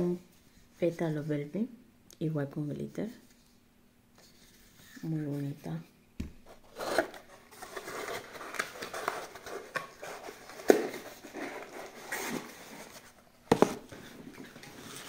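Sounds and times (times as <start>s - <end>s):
cardboard rustling and scraping: 6.4s - 15.0s.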